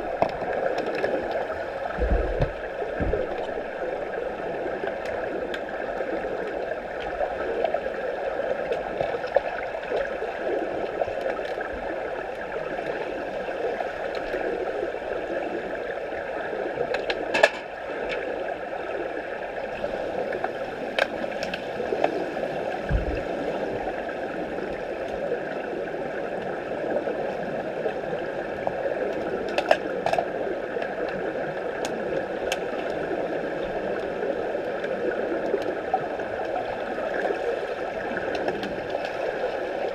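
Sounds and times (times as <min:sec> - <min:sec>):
underwater water and bubbles: 0:00.0 - 0:39.9
short low thump: 0:02.0 - 0:03.3
sharp underwater clicks: 0:16.9 - 0:18.3, 0:29.1 - 0:31.2.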